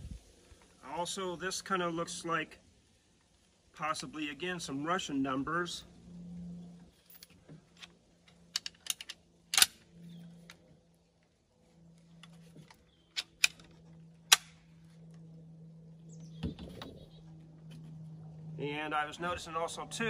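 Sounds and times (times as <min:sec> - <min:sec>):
faint low hum: 0:00.0 - 0:20.0
rifle being handled clicks and knocks: 0:07.2 - 0:09.8.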